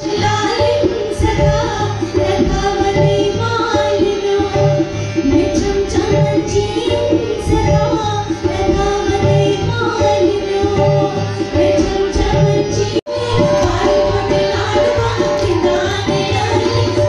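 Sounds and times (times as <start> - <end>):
hand drum rhythm: 11.8 - 17.0.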